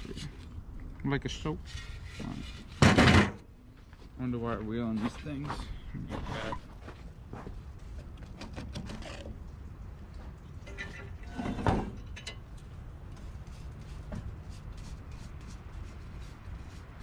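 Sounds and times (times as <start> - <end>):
steel arm scraping and knocking on metal: 1.6 - 3.4, 10.7 - 12.4.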